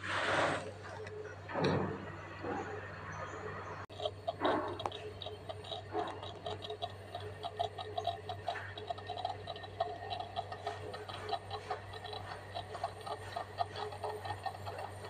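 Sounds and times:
moka pot ticking: 3.9s - 15.0s.

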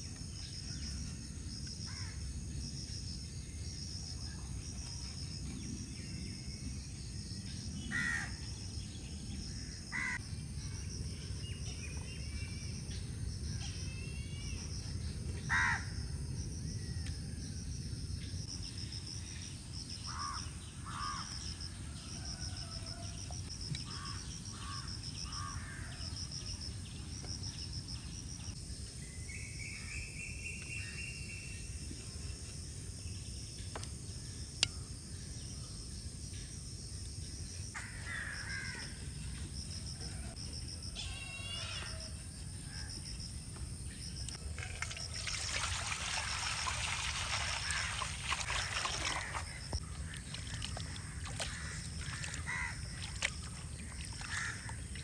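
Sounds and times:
insects trilling: 0.0s - 55.0s.

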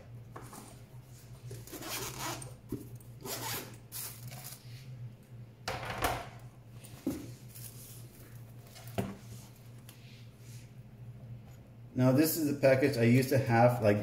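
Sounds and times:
zipper being pulled open: 1.6s - 2.6s, 3.2s - 4.6s.

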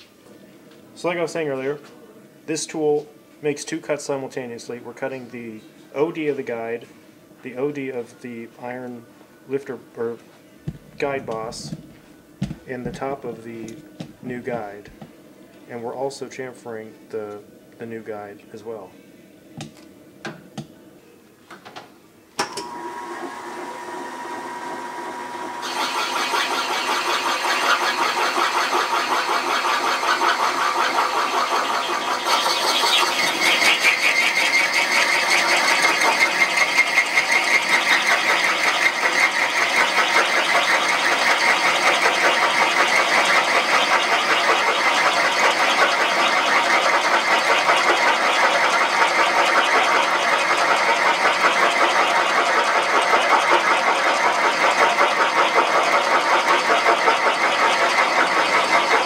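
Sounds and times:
metal cutting tool chattering: 25.6s - 59.0s.

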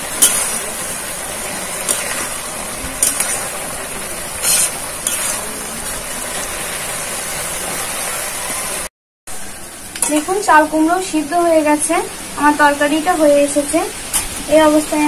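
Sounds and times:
food sizzling in a pan: 0.0s - 15.0s
metal spatula scraping a pan: 0.2s - 0.7s, 1.8s - 2.3s, 3.0s - 3.6s, 4.4s - 5.6s.

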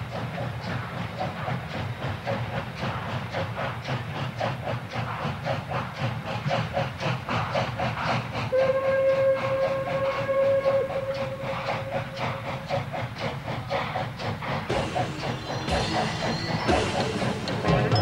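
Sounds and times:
steam locomotive chuffing: 0.0s - 18.0s
train rumble: 0.0s - 18.0s
steam whistle: 8.5s - 12.6s.

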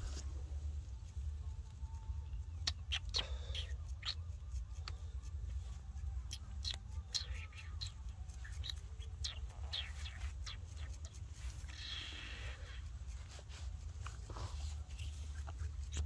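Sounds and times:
steady low rumble: 0.0s - 16.0s
baby monkey squeaking: 2.6s - 4.9s, 6.2s - 12.8s.

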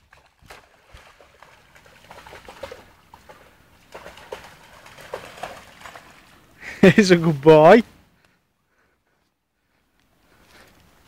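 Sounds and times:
dog splashing through water: 0.0s - 6.6s.

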